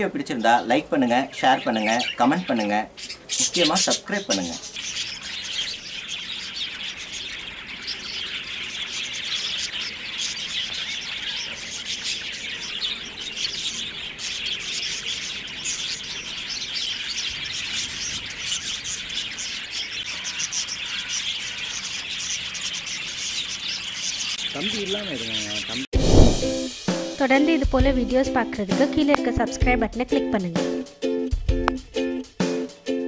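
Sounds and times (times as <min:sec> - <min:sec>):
budgerigars chattering: 0:00.0 - 0:25.9.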